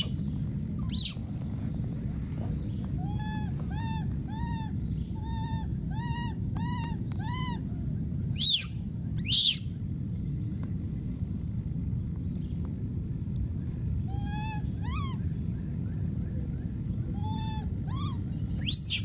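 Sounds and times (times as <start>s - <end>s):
baby monkey coo calls: 0.0s - 0.2s, 0.8s - 1.2s, 2.7s - 9.8s, 14.0s - 15.8s, 17.1s - 19.0s
low background rush: 0.0s - 19.0s
high-pitched monkey screams: 0.8s - 1.2s, 3.0s - 7.6s, 8.4s - 9.7s, 14.1s - 15.2s, 17.1s - 19.0s.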